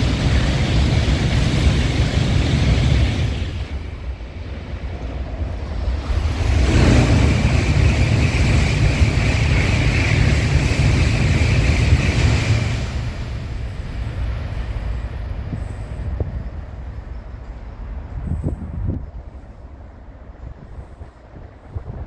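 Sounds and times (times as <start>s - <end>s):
train rushing past: 0.0s - 22.0s.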